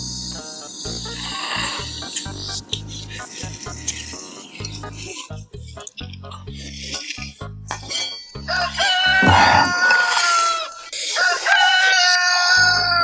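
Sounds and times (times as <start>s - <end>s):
background music: 0.0s - 10.0s
rooster crowing: 8.5s - 13.0s.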